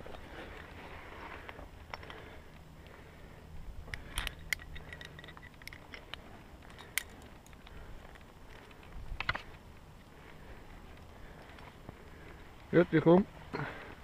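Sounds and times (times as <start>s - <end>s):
light clicks and scrapes: 3.9s - 12.8s.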